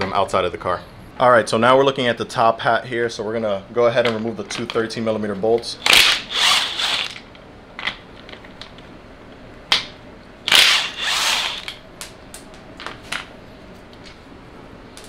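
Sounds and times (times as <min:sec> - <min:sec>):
cordless power tool spinning: 0:05.8 - 0:07.2, 0:10.5 - 0:11.8.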